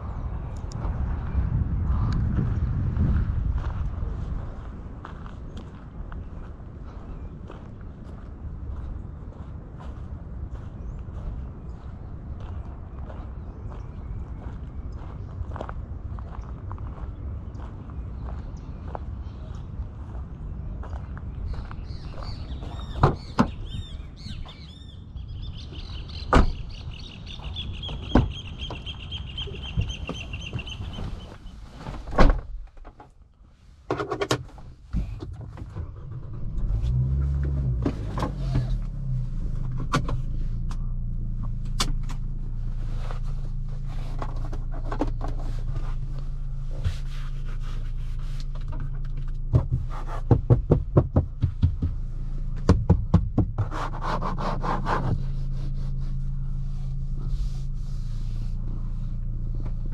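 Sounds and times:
car engine starting and idling: 34.2s - 59.9s.

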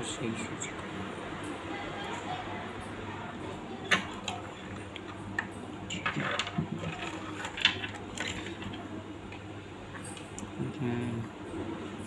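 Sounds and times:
steady low hum: 0.0s - 12.0s
plastic clicking and rustling: 3.9s - 8.8s.

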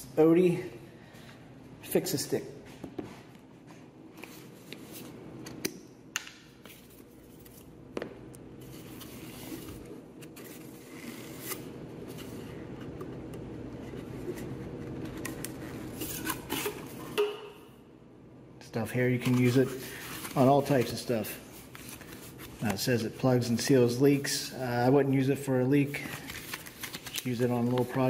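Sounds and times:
low steady hum: 0.0s - 28.0s
plastic wrapping crinkling: 26.1s - 28.0s.

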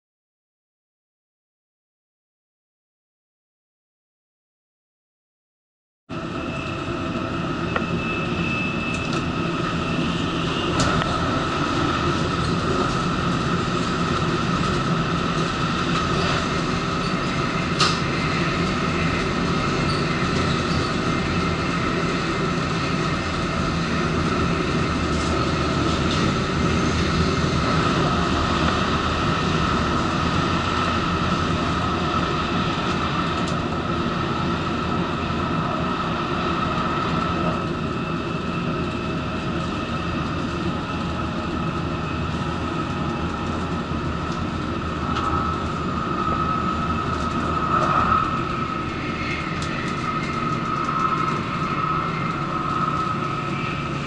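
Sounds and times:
steady high whine: 6.1s - 54.0s
train wheels rumbling: 6.2s - 54.0s.

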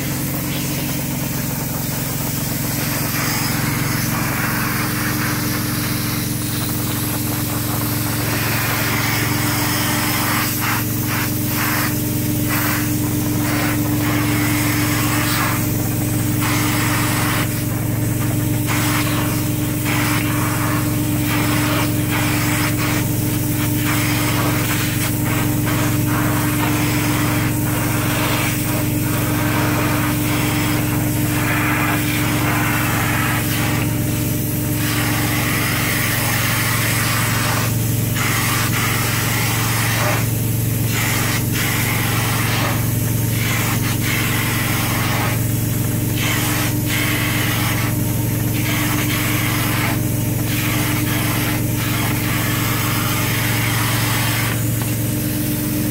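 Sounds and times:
extraction unit humming: 0.0s - 18.7s
spraying and vacuuming hiss: 0.0s - 55.9s.

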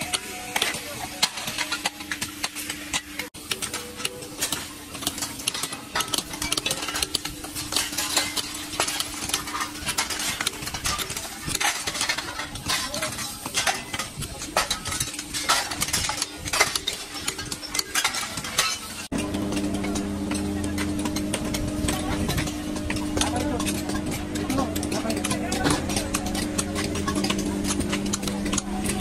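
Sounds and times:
scrap metal clattering: 0.1s - 29.0s
steady low hum: 19.1s - 29.0s.

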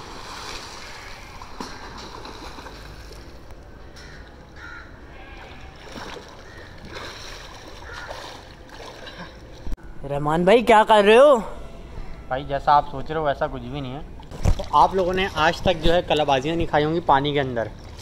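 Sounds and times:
swimming strokes splashing: 0.0s - 3.5s, 5.7s - 9.7s
pool water splashing: 0.0s - 4.5s, 5.4s - 9.8s, 14.1s - 18.0s
bird calls: 7.8s - 8.5s.

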